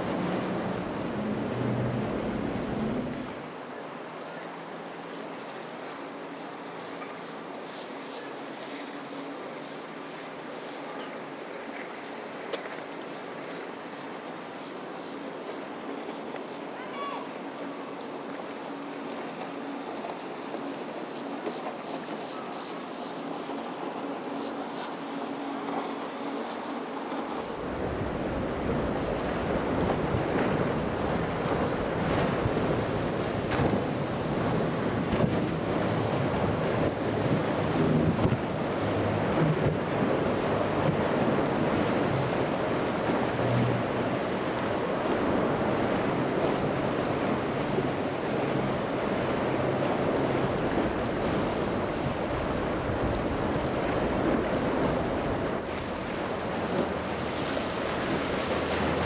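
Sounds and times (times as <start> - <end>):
wind buffeting microphone: 0.0 - 3.4, 27.4 - 59.0
boat engines droning: 0.0 - 59.0
waves breaking: 0.0 - 59.0.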